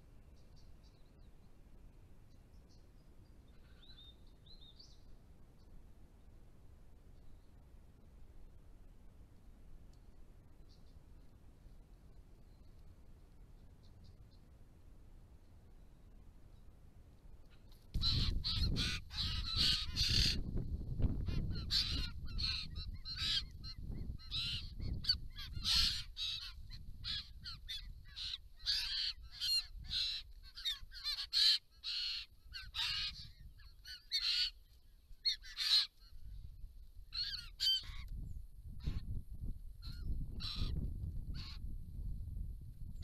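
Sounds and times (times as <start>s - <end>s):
birds calling: 2.2s - 5.7s, 17.5s - 36.2s, 37.1s - 38.2s, 39.8s - 41.6s.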